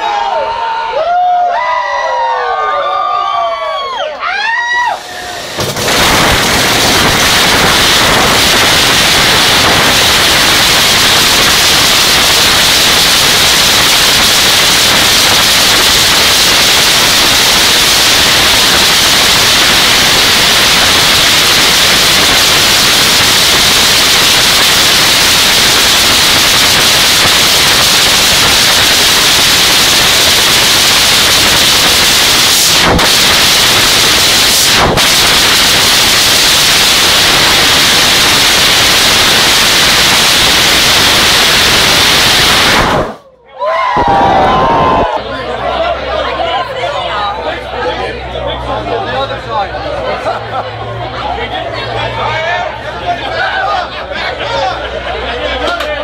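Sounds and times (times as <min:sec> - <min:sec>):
drag racing engine roaring: 0:05.0 - 0:43.2.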